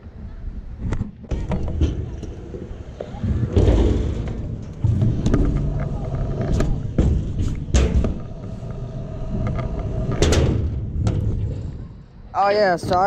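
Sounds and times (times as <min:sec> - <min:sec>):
scooter clacks and thumps: 0:00.8 - 0:08.4
scooter wheels rolling on concrete: 0:01.1 - 0:10.4.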